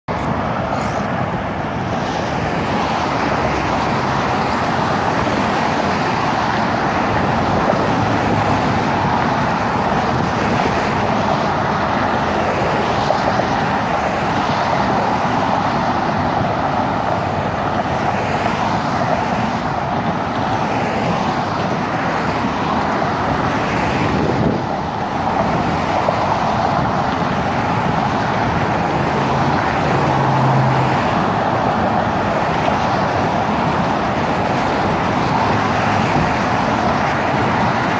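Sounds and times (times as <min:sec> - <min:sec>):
car traffic passing: 0:00.1 - 0:37.9.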